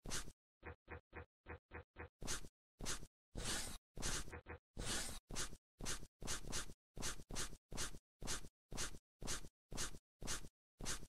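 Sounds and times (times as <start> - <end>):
pen scratching on paper: 2.3 - 11.0.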